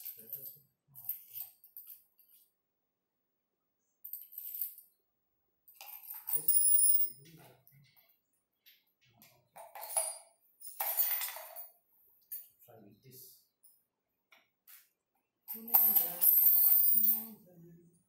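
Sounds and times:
metal fittings clinking on tiles: 0:00.0 - 0:02.5, 0:04.0 - 0:05.0, 0:05.7 - 0:12.6, 0:15.5 - 0:17.4.

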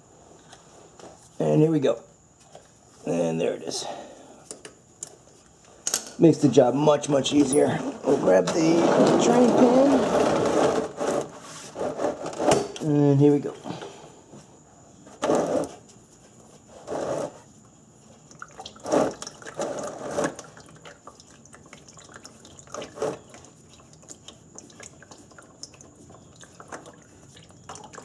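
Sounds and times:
oil dripping into drain pan: 0:20.2 - 0:28.0.

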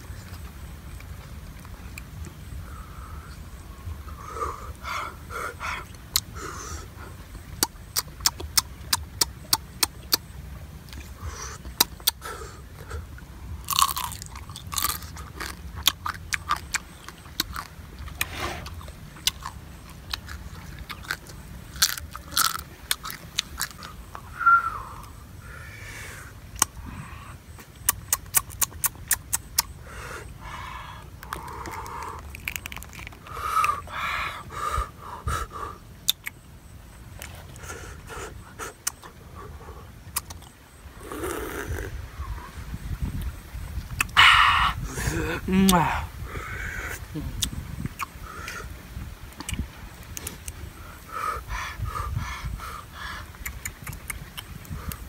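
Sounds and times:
crab shells crunching: 0:13.7 - 0:23.9, 0:31.2 - 0:33.3
slurps and breath puffs: 0:16.9 - 0:21.4, 0:37.1 - 0:55.0.

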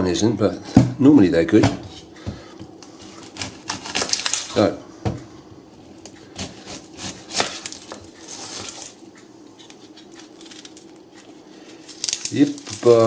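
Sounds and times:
knife cutting onion on board: 0:01.7 - 0:04.4, 0:06.2 - 0:08.9
onion skin crackling and rustling: 0:02.8 - 0:04.8, 0:05.7 - 0:13.0
knife scraping: 0:06.4 - 0:09.0.

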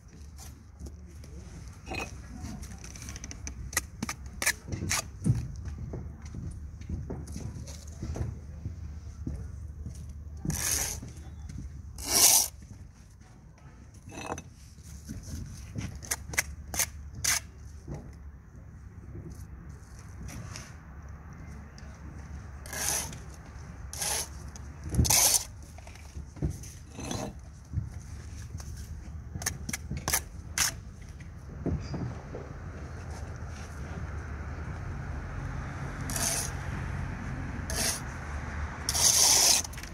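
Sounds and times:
trowel scraping and tapping bricks: 0:00.1 - 0:08.3, 0:10.0 - 0:12.8, 0:13.6 - 0:18.2, 0:21.8 - 0:32.1, 0:36.1 - 0:36.6, 0:37.7 - 0:38.1, 0:38.8 - 0:39.9.

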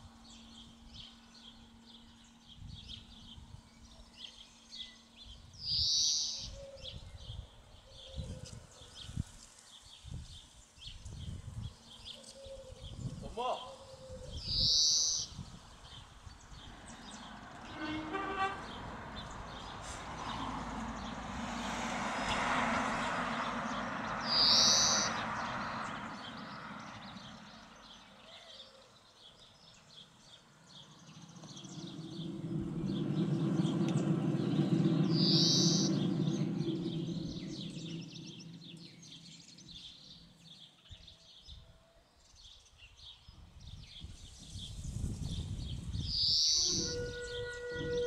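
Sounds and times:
birds singing: 0:00.1 - 0:21.2, 0:23.0 - 0:48.0
low rumble: 0:30.7 - 0:40.7.

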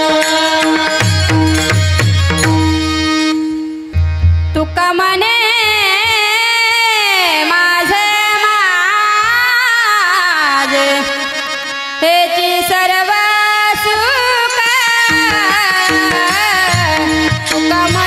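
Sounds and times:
woman singing: 0:00.0 - 0:01.5, 0:04.6 - 0:11.3, 0:12.0 - 0:18.0
harmonium: 0:00.0 - 0:18.0.

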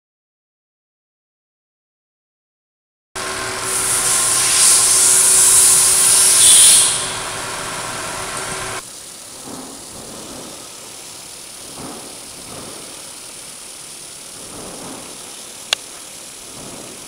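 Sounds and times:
pump and fan hum: 0:03.2 - 0:11.6
high hiss of mist nozzles: 0:03.2 - 0:17.0.

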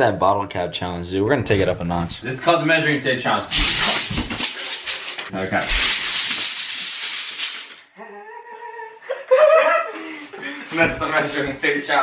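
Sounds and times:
tape measure blade rattling: 0:03.5 - 0:07.8.

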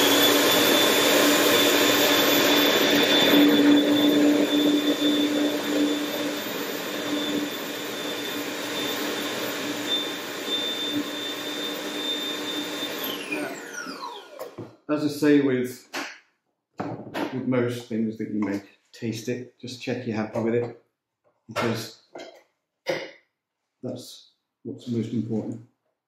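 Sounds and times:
food processor motor blending: 0:00.0 - 0:14.8.

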